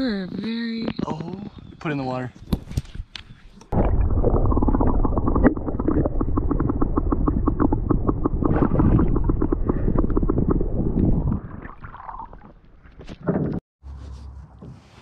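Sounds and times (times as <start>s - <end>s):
underwater sloshing and bubbling: 3.7s - 13.3s.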